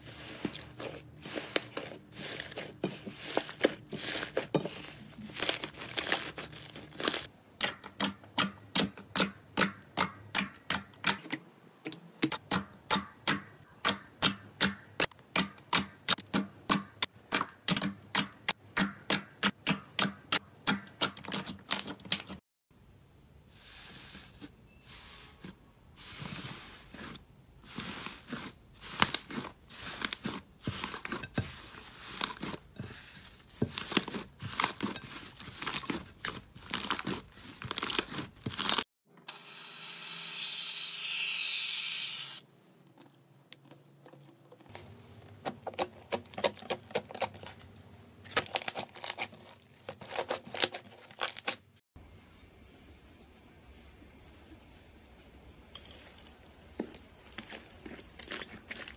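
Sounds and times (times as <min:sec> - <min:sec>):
slime crackling and squishing: 0:00.0 - 0:07.3, 0:26.1 - 0:38.9, 0:42.5 - 0:51.8.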